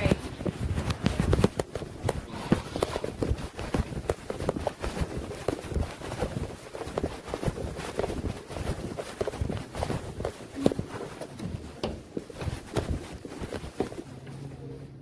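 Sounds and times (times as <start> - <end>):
footsteps walking: 0.0 - 14.8.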